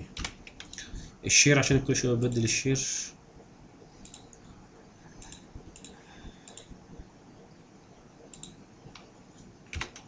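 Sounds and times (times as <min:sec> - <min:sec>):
room hiss: 0:00.0 - 0:09.9
computer mouse clicks: 0:04.0 - 0:04.5, 0:05.2 - 0:06.8, 0:08.2 - 0:10.0.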